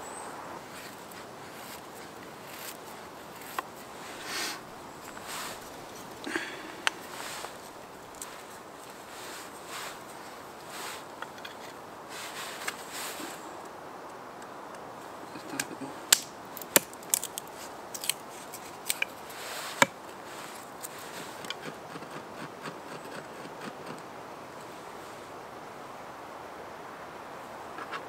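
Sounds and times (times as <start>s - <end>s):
knife scraping wood: 0.7s - 13.3s, 15.4s - 24.1s
wood cracking and knocking: 15.5s - 20.0s.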